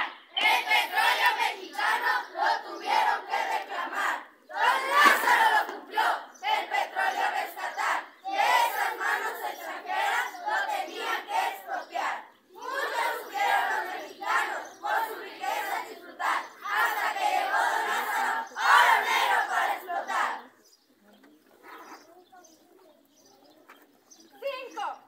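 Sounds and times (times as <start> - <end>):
students chanting in unison: 0.0 - 20.6.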